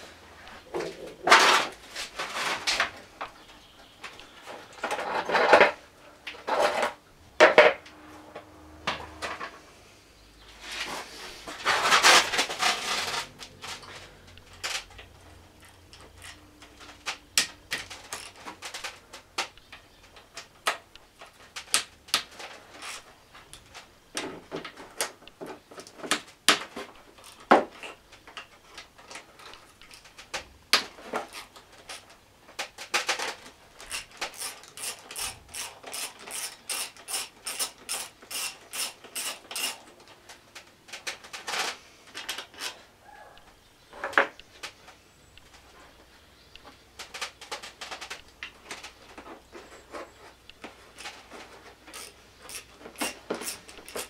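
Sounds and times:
ratchet wrench clicking: 0:33.9 - 0:39.8, 0:51.9 - 0:54.0.

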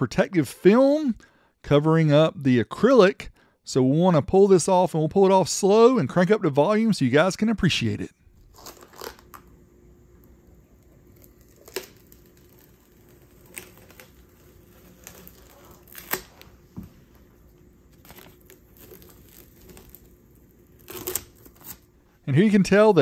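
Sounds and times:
plastic film peeling and crackling: 0:08.4 - 0:09.6, 0:10.2 - 0:21.9.

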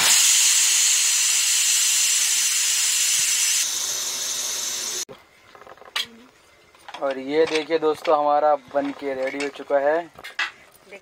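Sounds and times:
pressure cooker whistle hissing: 0:00.0 - 0:05.0.

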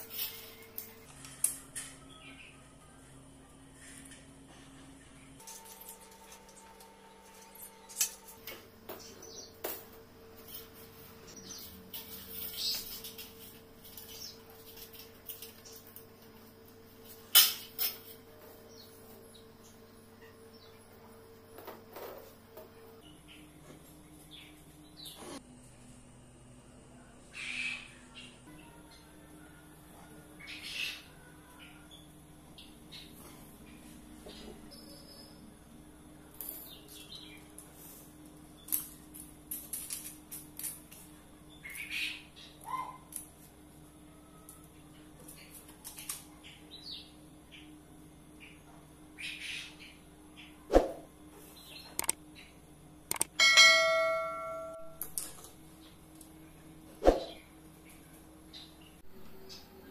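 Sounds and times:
faint steady hum: 0:00.0 - 0:59.9
metallic clicks and rattles: 0:52.0 - 0:52.2, 0:53.1 - 0:53.3
sharp metallic clanks: 0:53.1 - 0:55.1.

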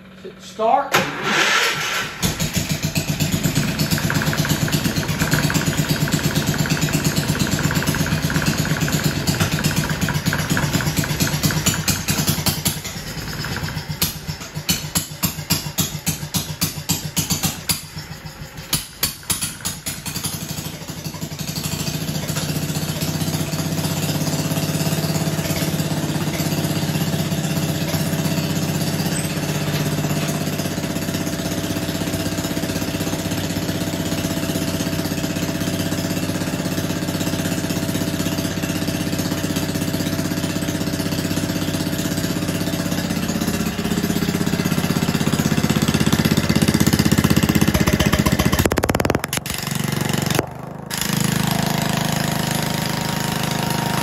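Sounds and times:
single-cylinder engine running: 0:00.0 - 0:54.0.

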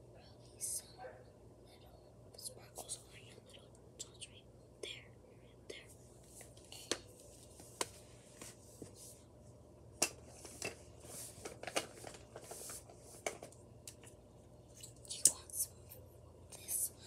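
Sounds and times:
soft scratchy rustling: 0:05.9 - 0:09.3, 0:10.3 - 0:13.2.

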